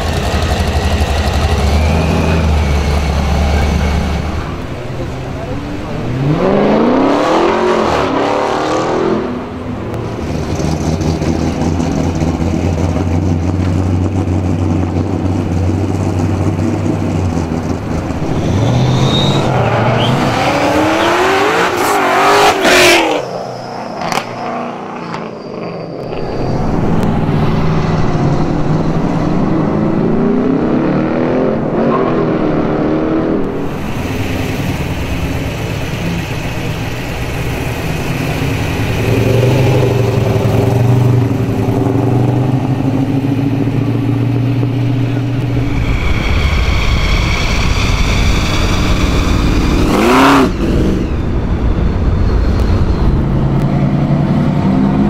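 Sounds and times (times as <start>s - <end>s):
car engines revving hard: 0.0s - 55.0s
low engine rumble: 33.3s - 55.0s.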